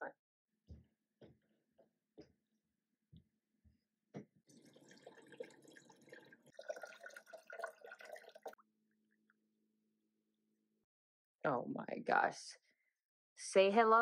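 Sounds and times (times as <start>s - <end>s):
water pouring into tank: 4.5s - 8.6s.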